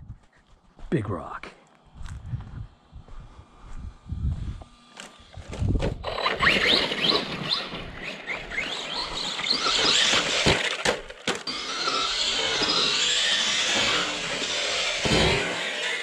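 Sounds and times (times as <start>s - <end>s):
electric motor whining: 3.8s - 16.0s.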